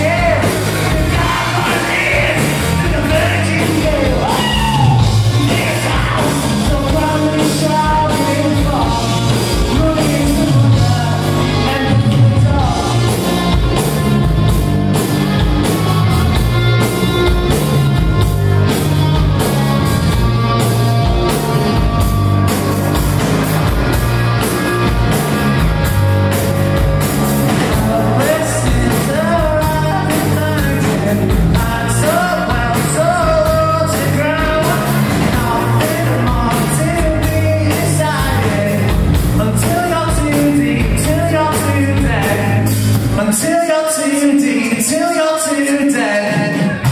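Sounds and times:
person singing: 0.0s - 13.6s, 27.5s - 46.9s
live rock band playing: 0.0s - 46.9s.

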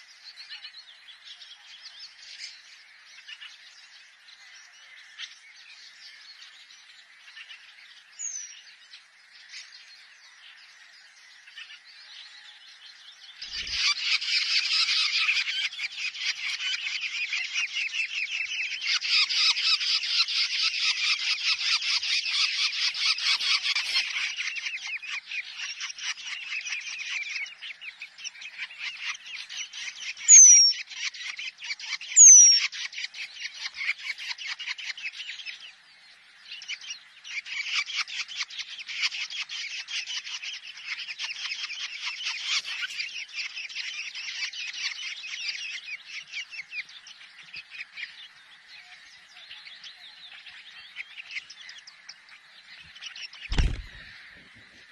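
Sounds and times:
nestlings chattering calls: 13.4s - 35.4s, 36.6s - 48.2s, 49.9s - 54.6s.

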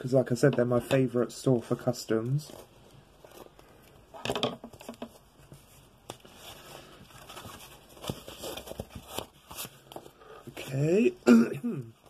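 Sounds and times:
wrapping rustling: 1.8s - 11.1s.

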